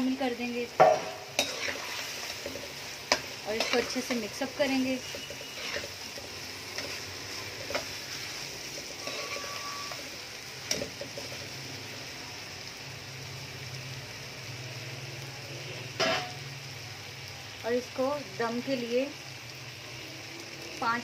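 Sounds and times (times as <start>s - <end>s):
spoon knocking against pan: 0.8s - 1.2s.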